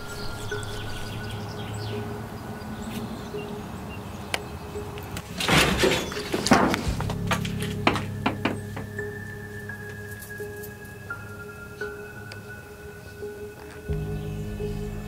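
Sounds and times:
metal shed door scraping rattle: 0:05.2 - 0:08.6
low film score drone: 0:07.0 - 0:15.0.

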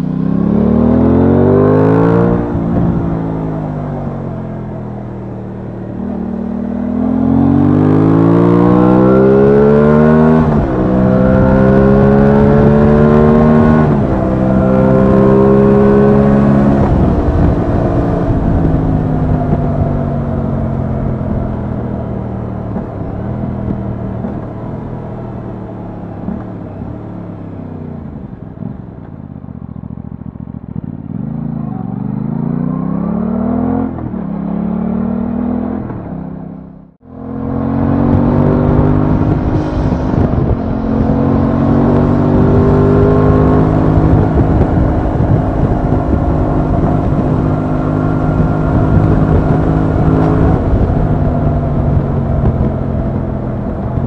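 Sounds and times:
motorcycle engine accelerating: 0:00.0 - 0:54.0.

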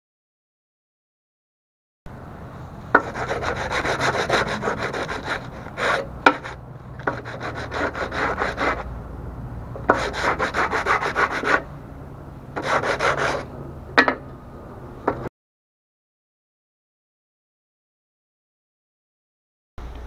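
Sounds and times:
sandpaper scratching on wood: 0:03.0 - 0:08.9, 0:09.9 - 0:11.6, 0:12.6 - 0:13.5.

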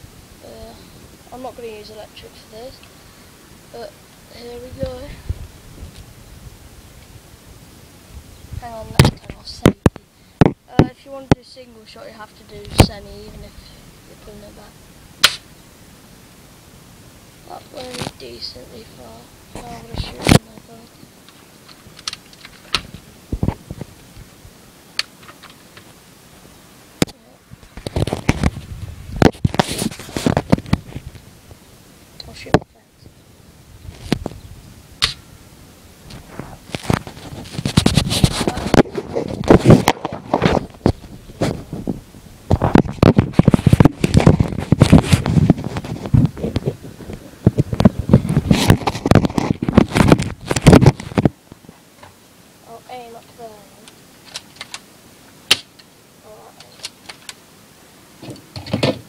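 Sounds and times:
irregular clicks and crackles: 0:19.6 - 0:26.0, 0:36.0 - 0:41.6, 0:42.5 - 0:52.2, 0:53.2 - 0:57.5.

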